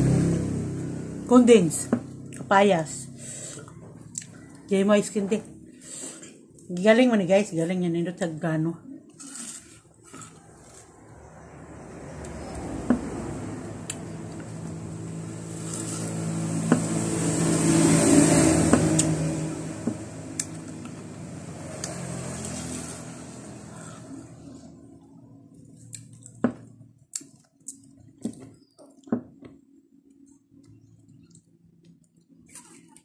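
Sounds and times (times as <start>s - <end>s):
vehicle engine passing by: 0.0s - 4.1s, 9.3s - 25.7s.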